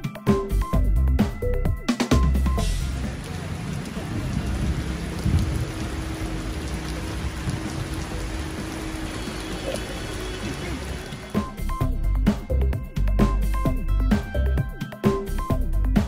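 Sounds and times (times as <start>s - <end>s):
heavy rain on a street: 2.1s - 11.8s.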